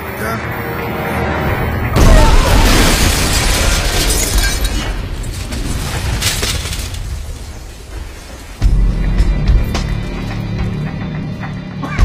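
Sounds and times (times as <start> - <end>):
bomb explosion: 2.0 - 8.2
crackling burst: 2.0 - 8.6.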